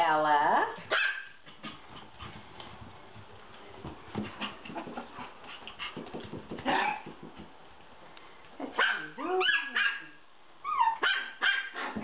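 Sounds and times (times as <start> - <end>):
puppies scuffling: 0.8 - 8.1.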